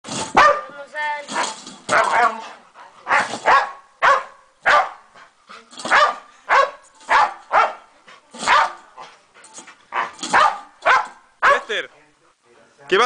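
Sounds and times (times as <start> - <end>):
dog barking: 0.4 - 0.7, 3.1 - 5.1, 5.9 - 7.8, 8.4 - 8.8, 9.9 - 11.7.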